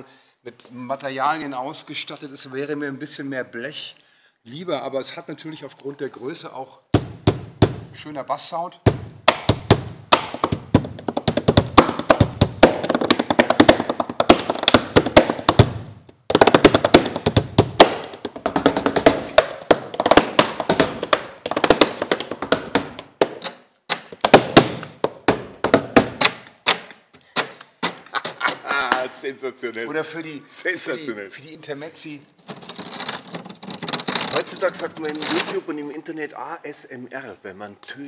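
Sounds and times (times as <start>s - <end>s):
hand drumming on metal panels: 8.9s - 23.4s.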